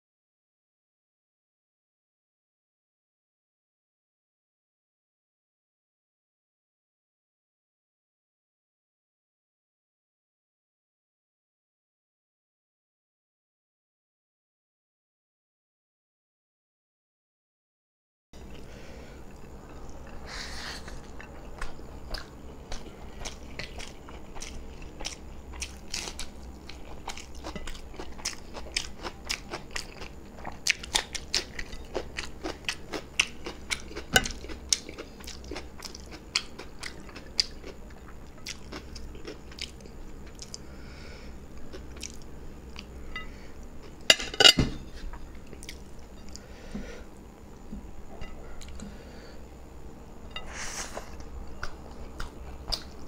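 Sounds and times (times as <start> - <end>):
wet chewing clicks: 51.6 - 53.0.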